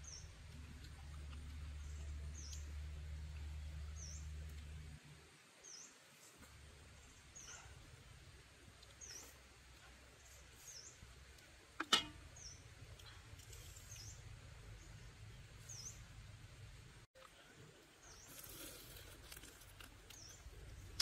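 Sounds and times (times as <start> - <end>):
bird chirping: 0.0 - 4.6, 12.3 - 16.4
low steady rumble: 0.0 - 5.4, 6.4 - 17.8.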